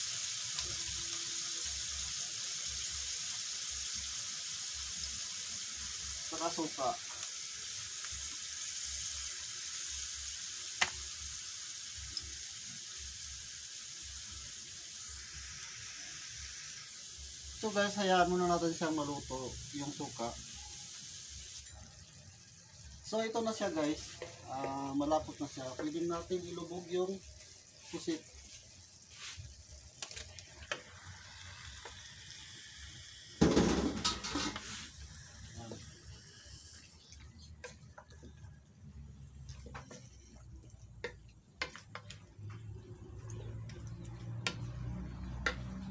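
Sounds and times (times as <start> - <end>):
wok sizzling hiss: 0.0 - 45.9
spatula scraping wok: 23.7 - 24.5, 33.4 - 37.0, 39.4 - 45.9
spatula knocking on wok: 41.0 - 42.1, 45.3 - 45.8.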